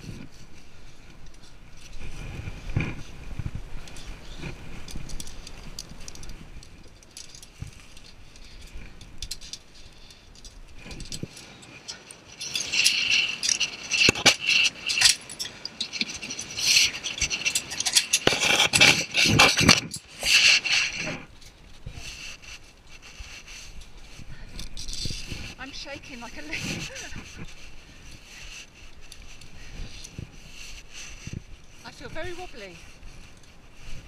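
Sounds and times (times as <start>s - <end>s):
carabiners clinking on steel cable: 3.7s - 34.0s
metal scrapes and knocks: 10.9s - 21.3s.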